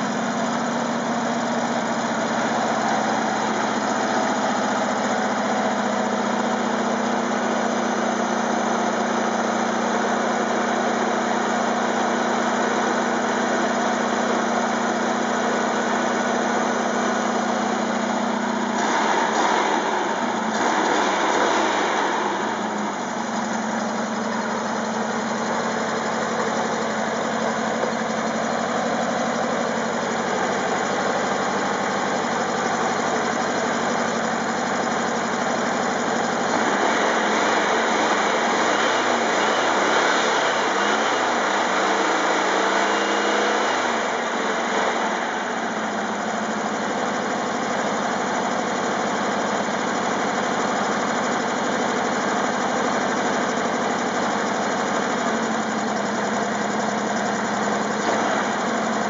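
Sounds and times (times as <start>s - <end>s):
air-cooled engine idling: 0.0s - 59.0s.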